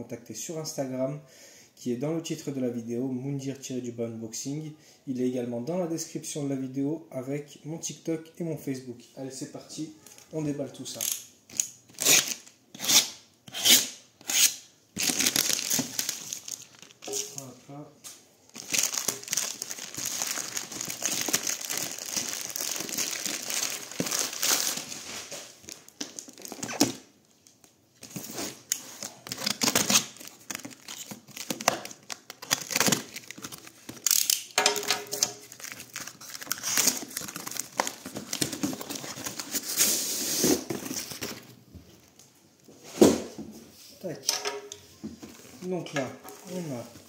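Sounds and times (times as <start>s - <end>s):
packing tape ripping: 11.0s - 17.3s, 18.6s - 27.1s, 28.0s - 41.2s
plastic bag crinkling and tearing: 15.0s - 17.5s, 18.5s - 27.1s, 28.0s - 39.8s.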